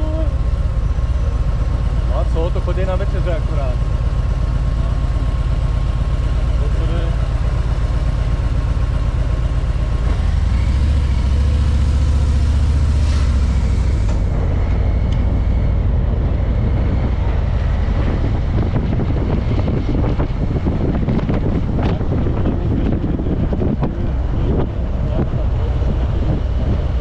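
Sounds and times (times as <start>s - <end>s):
car engine and road rumble: 0.0s - 27.0s
wind buffeting microphone: 13.4s - 27.0s.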